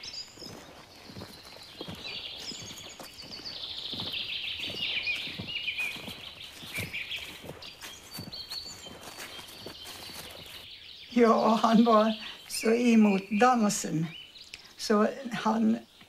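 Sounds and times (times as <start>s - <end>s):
footsteps on forest floor: 0.0s - 13.3s
songbirds singing: 0.0s - 16.0s.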